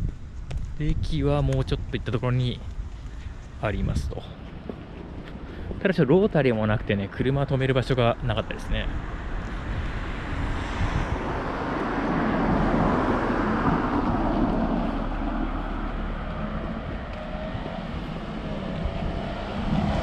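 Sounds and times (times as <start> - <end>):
cars driving by: 4.2 - 20.0.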